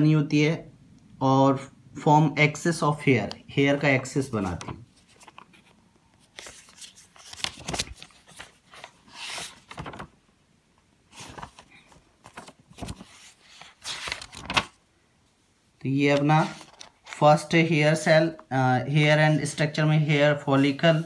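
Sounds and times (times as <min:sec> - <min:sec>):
notebook pages rustling: 0:04.0 - 0:10.2, 0:11.1 - 0:14.8, 0:15.9 - 0:18.4, 0:20.1 - 0:21.0.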